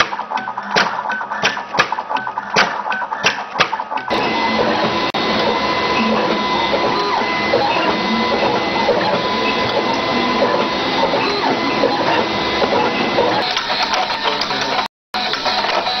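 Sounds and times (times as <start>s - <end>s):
machine whirring: 0.0s - 16.0s
thin steady whine: 4.1s - 15.8s.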